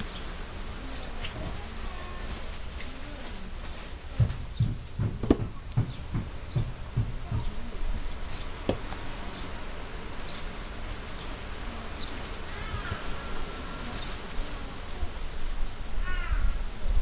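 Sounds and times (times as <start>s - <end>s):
faint hiss: 0.0s - 4.6s, 5.5s - 17.0s.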